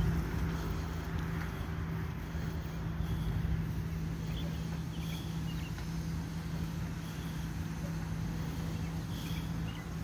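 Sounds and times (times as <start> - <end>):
bicycle rolling over concrete: 0.0 - 10.0.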